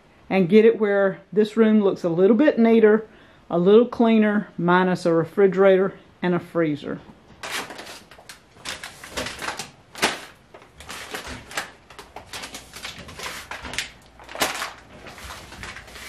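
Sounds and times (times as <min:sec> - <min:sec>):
plastic bags rustling: 0:07.4 - 0:16.0.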